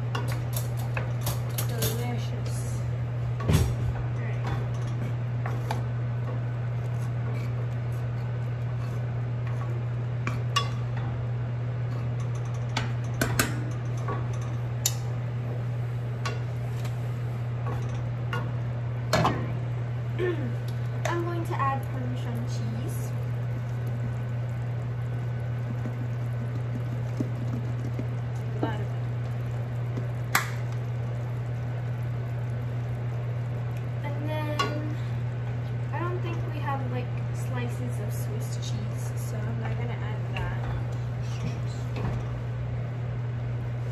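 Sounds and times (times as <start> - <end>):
steady low hum: 0.0 - 43.9
water boiling and bubbling: 0.0 - 43.9
wooden spoon stirring sauce: 23.2 - 34.0.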